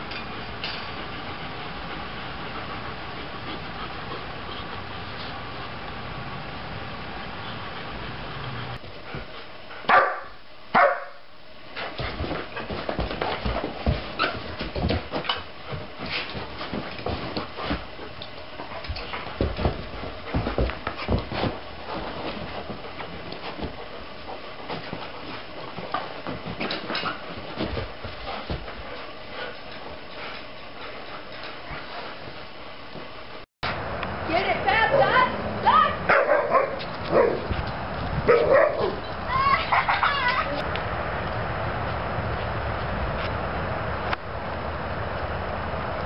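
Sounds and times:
dog barking: 0:09.9 - 0:11.2, 0:36.1 - 0:37.5, 0:38.3 - 0:39.0
dogs scuffling on carpet: 0:11.6 - 0:33.4, 0:36.2 - 0:39.0.

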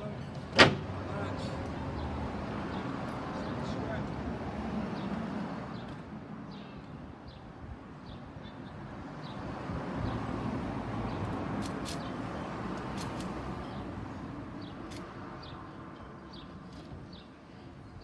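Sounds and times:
street traffic: 0:00.0 - 0:18.0.

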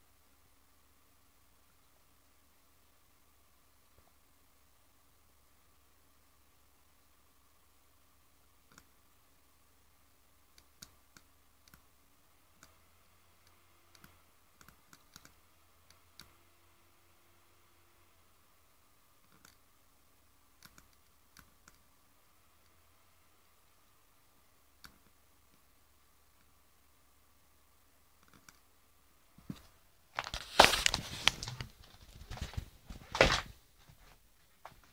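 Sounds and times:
low steady hum: 0:00.0 - 0:34.9
computer mouse clicks: 0:08.7 - 0:09.0, 0:10.5 - 0:11.9, 0:12.5 - 0:12.8, 0:13.4 - 0:16.4, 0:19.2 - 0:19.7, 0:20.6 - 0:21.9, 0:24.8 - 0:25.6, 0:28.2 - 0:28.7
camera handling rustling: 0:30.2 - 0:33.5.

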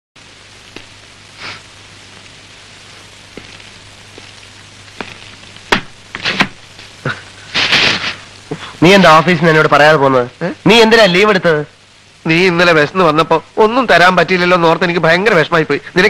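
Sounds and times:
steady hiss and low hum: 0:00.2 - 0:16.0
sharp knocks: 0:05.7 - 0:06.6.

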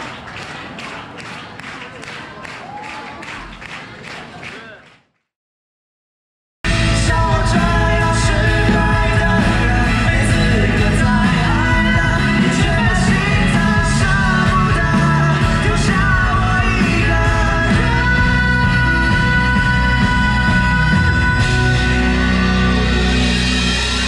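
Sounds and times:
man singing: 0:06.7 - 0:23.1
live pop band: 0:06.7 - 0:24.0.

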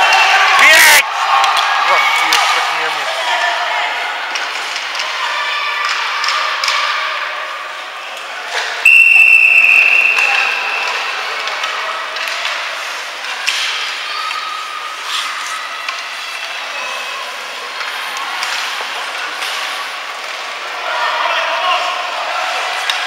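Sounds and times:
ice rink background din: 0:00.0 - 0:23.0
referee's whistle blast: 0:08.9 - 0:10.9.

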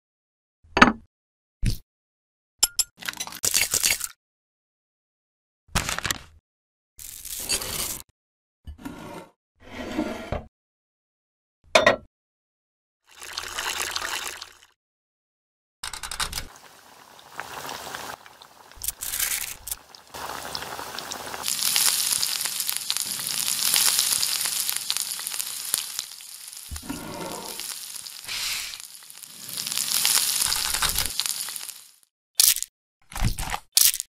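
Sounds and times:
chicken deep-frying in oil: 0:13.1 - 0:14.8, 0:15.8 - 0:32.1.

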